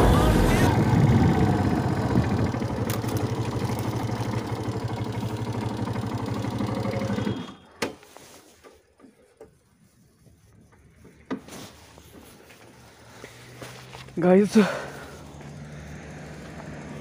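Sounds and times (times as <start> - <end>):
motorcycle engine at low revs: 0.0 - 7.7, 14.5 - 17.0.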